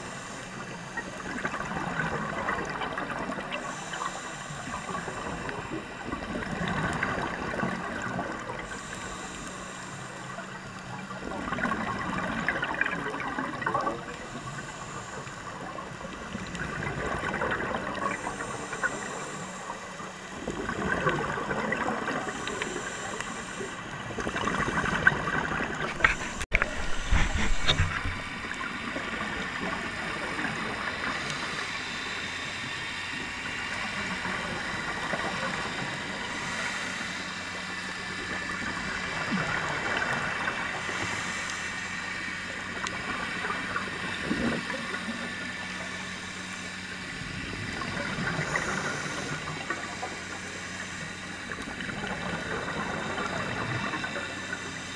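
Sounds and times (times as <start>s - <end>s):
gurgling bubbles of exhalation: 20.4s - 22.7s, 24.0s - 31.7s.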